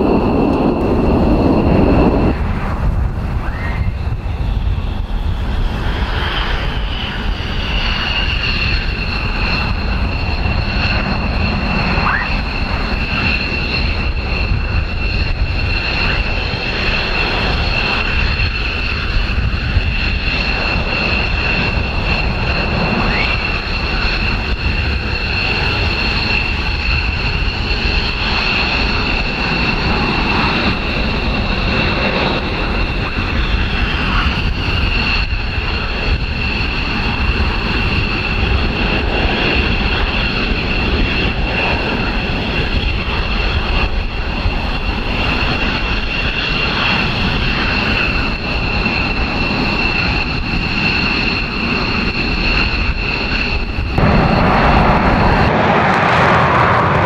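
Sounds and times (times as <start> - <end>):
jet engines whining: 0.0 - 57.0.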